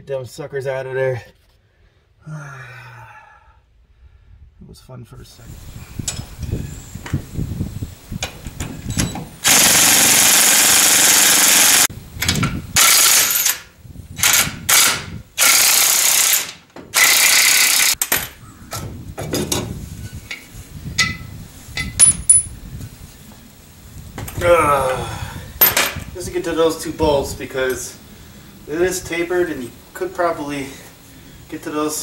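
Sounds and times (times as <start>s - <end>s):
impact wrench hammering: 9.4s - 13.6s, 14.2s - 18.4s
knocks and clicks of tool handling: 16.4s - 17.0s, 18.0s - 19.7s, 20.3s - 22.4s.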